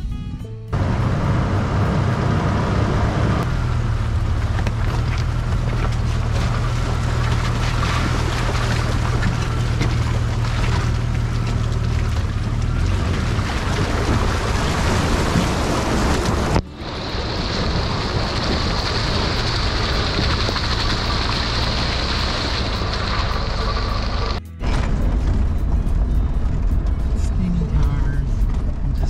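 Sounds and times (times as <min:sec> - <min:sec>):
music: 0:00.0 - 0:00.8, 0:16.6 - 0:17.8, 0:23.1 - 0:29.0
low engine hum: 0:00.0 - 0:29.0
tyres splashing through water: 0:00.8 - 0:24.4.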